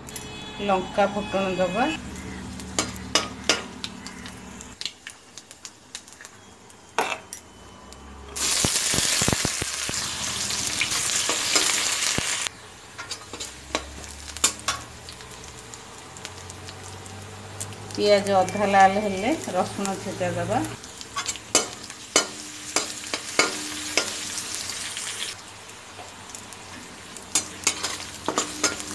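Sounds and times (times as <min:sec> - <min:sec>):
loud sizzling in oil: 0:01.0 - 0:07.2, 0:08.4 - 0:28.9
spices ticking in oil: 0:02.0 - 0:06.9, 0:13.2 - 0:20.1
metal spatula scraping pan: 0:27.4 - 0:28.9.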